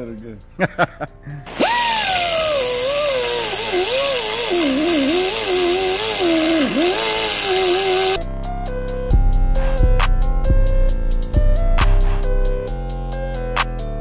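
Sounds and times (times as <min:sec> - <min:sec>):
grinding metal hiss: 0:01.2 - 0:08.2
rotary tool whining: 0:01.5 - 0:08.2.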